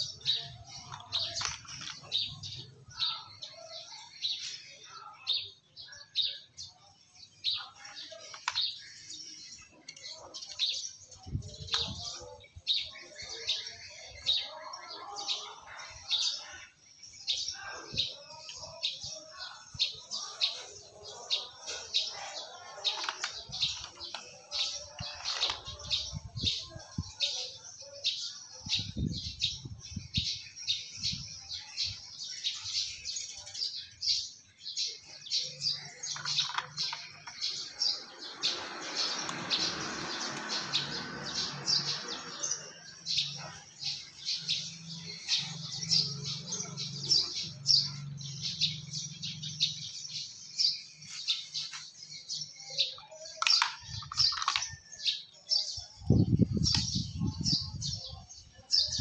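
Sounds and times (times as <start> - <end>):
small birds chirping: 0.0 - 59.0
mussel shells clicking: 0.7 - 2.1, 8.2 - 9.0, 22.9 - 25.7, 35.9 - 37.6, 53.4 - 54.8.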